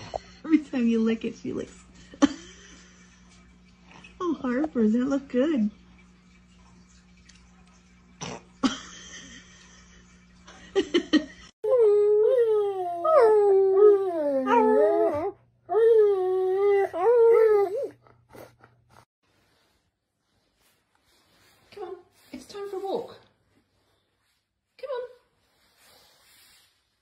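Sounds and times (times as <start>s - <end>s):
dog howling: 11.7s - 18.0s.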